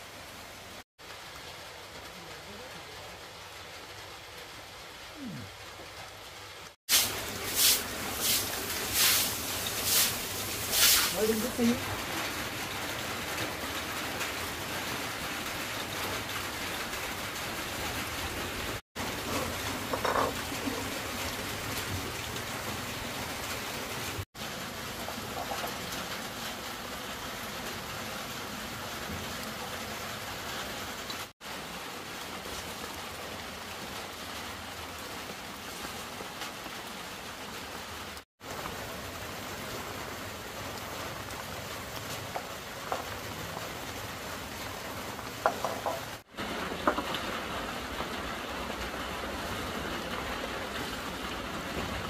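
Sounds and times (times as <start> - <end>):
steady hiss: 6.9 - 11.8.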